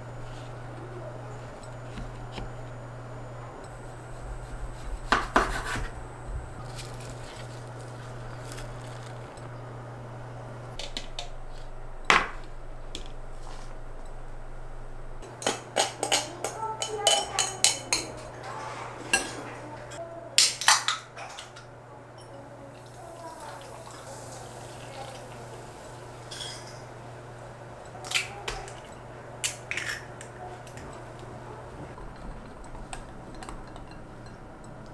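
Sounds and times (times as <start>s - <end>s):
low steady hum: 0.0s - 34.9s
egg cracking: 4.4s - 9.4s
utensils clinking against glass bowl: 15.2s - 22.4s, 26.3s - 26.9s, 32.2s - 34.9s.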